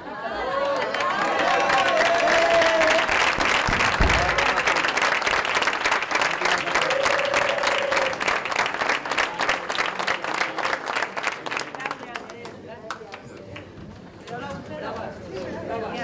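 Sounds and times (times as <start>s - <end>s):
people applauding: 0.1s - 13.7s
low thump: 3.4s - 4.9s.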